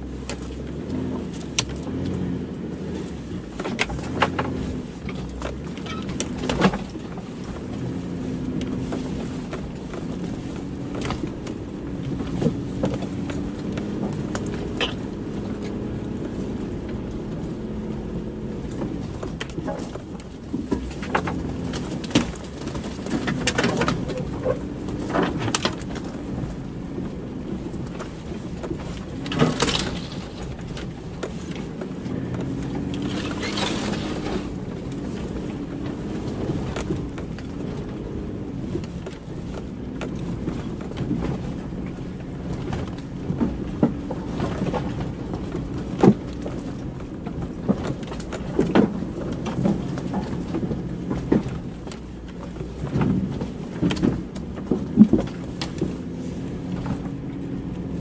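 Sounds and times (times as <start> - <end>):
vehicle engine running slowly: 0.0 - 58.0
vehicle knocks and thumps: 0.0 - 58.0.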